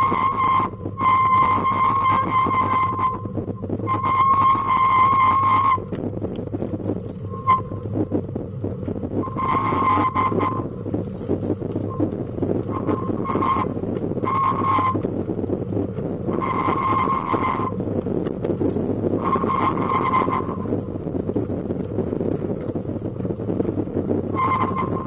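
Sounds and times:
wheels rolling on asphalt: 0.0 - 25.0.

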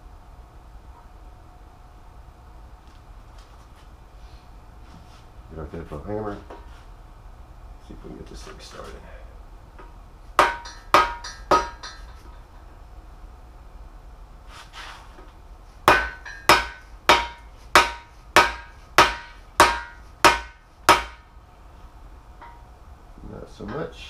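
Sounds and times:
hammer striking metal bar: 10.4 - 12.2, 15.9 - 21.2.

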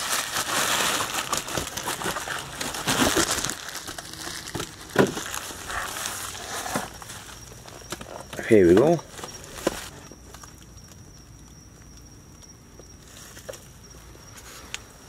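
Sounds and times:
bubble wrap crinkling: 0.0 - 11.5.

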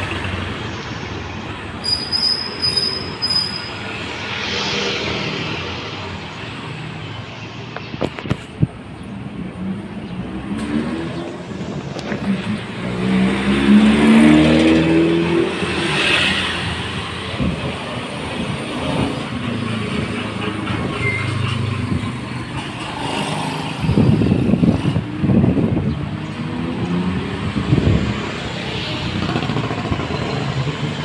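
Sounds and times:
vehicle engine accelerating past: 12.8 - 16.6.

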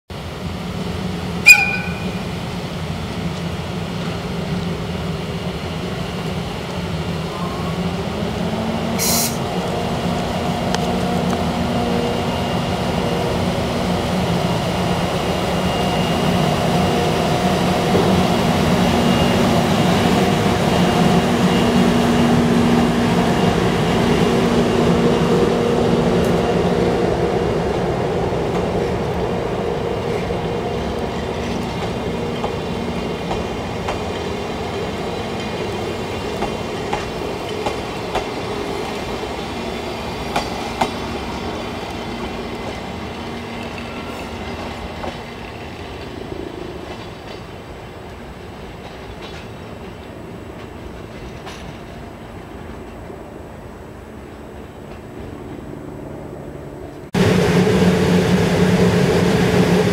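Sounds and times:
wheels rumbling on rail: 0.1 - 59.9
electric locomotive humming: 0.2 - 59.9
brief sharp noise: 1.5 - 2.2.

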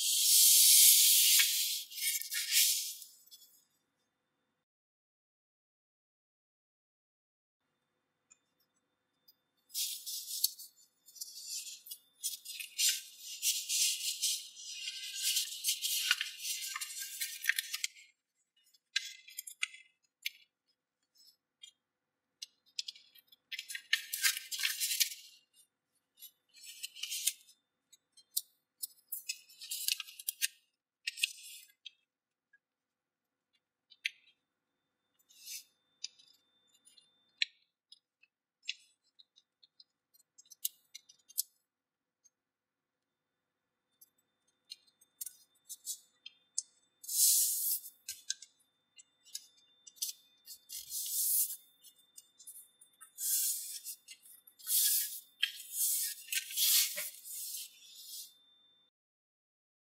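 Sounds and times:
paper crinkling and rustling: 11.2 - 18.0, 23.5 - 25.3, 53.2 - 58.2
paper rustling and crackling: 54.6 - 58.0.

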